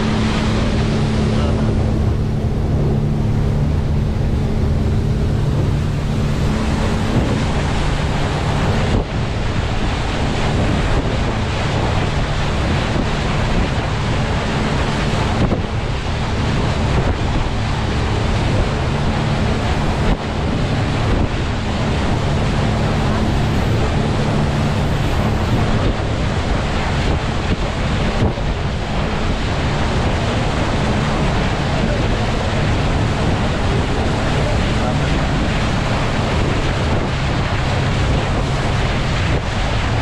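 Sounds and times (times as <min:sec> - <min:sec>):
boat engine humming: 0:00.0 - 0:40.0
wind buffeting microphone: 0:00.0 - 0:40.0.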